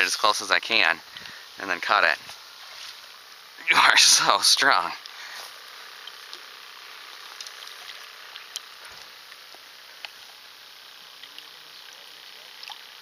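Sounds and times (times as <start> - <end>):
faint outdoor hiss: 0.0 - 13.0
small sharp ticks and clicks: 0.2 - 3.5, 5.0 - 13.0.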